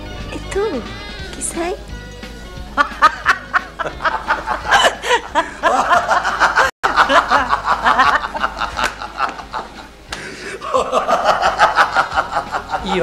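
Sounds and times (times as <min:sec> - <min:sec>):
people laughing and snickering: 0:02.7 - 0:13.0.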